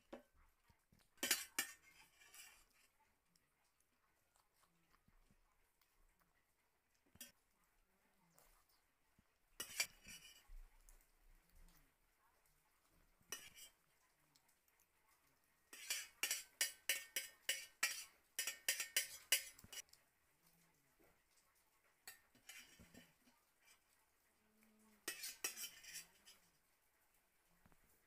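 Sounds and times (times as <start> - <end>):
metal spoon clinking against bowl: 1.2 - 2.6, 9.6 - 10.4, 13.3 - 13.7, 15.7 - 19.9, 22.1 - 23.1, 25.0 - 26.3.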